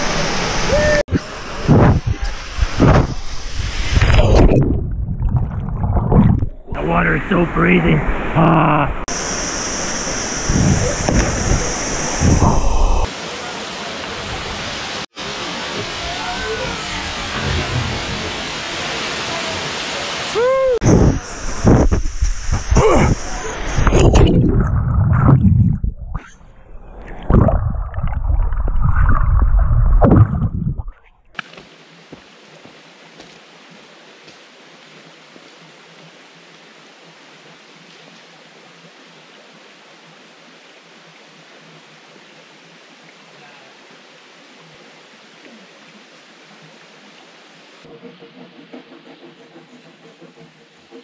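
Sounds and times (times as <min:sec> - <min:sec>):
waterfall rushing: 0:00.0 - 0:04.4, 0:06.7 - 0:24.2
flowing creek: 0:00.0 - 0:30.2, 0:31.3 - 0:51.0
wind on microphone: 0:00.6 - 0:06.8, 0:09.9 - 0:13.1, 0:20.8 - 0:26.2, 0:26.8 - 0:31.0
water sloshing and splashing: 0:01.6 - 0:06.8, 0:23.8 - 0:32.1.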